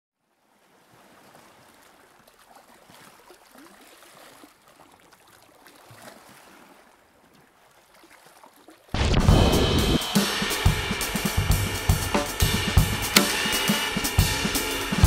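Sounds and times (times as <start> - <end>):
gentle sea waves lapping: 0.2 - 9.0.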